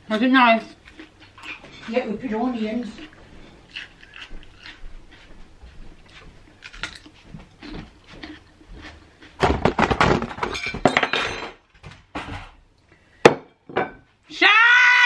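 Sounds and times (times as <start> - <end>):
objects clattering crash: 9.4 - 11.6.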